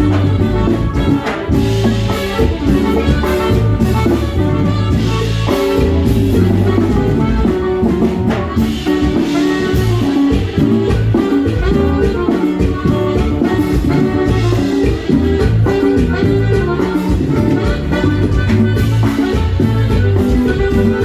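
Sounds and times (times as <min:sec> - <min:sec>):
drums and bass beat: 0:00.0 - 0:21.0
horn melody: 0:00.0 - 0:21.0.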